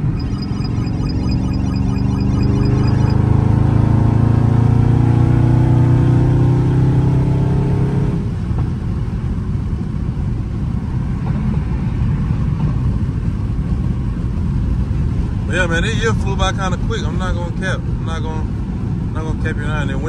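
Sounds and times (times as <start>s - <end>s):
car engine accelerating hard: 0.0s - 8.6s
road and tyre rumble: 0.0s - 20.0s.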